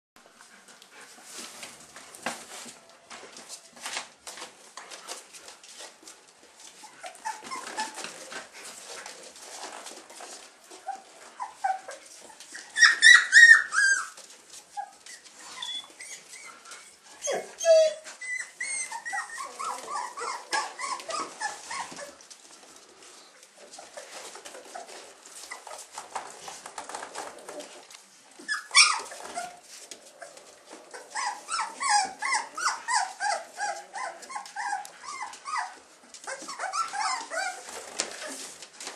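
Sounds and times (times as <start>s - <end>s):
puppies whimpering and squealing: 6.8s - 8.3s, 10.8s - 22.2s, 28.4s - 38.5s.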